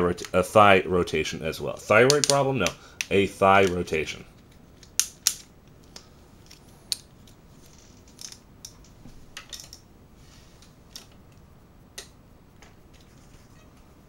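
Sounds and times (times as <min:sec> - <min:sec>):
plastic action figure clicking: 0:02.1 - 0:03.8.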